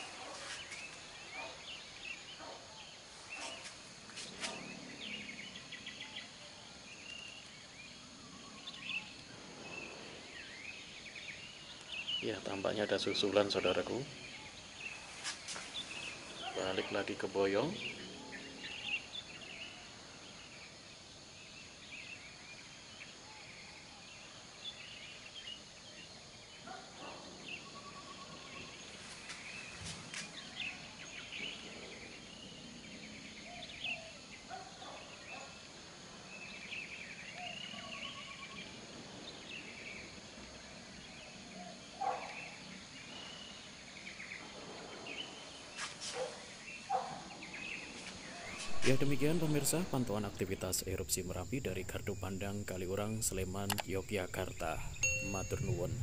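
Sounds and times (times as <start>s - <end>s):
faint steady hiss: 0.0s - 26.7s, 27.3s - 56.0s
small birds chirping: 0.0s - 56.0s
light clicks: 53.6s - 53.9s.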